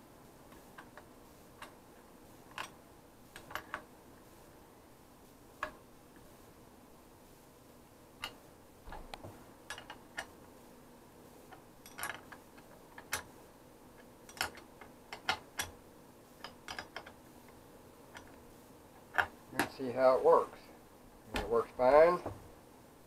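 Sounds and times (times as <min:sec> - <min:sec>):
light metallic clicks and knocks: 0:08.2 - 0:10.4, 0:16.4 - 0:17.2.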